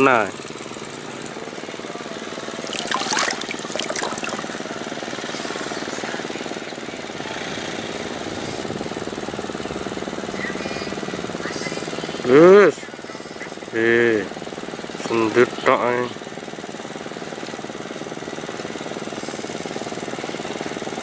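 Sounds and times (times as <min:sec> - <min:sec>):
small engine droning: 0:00.5 - 0:21.0.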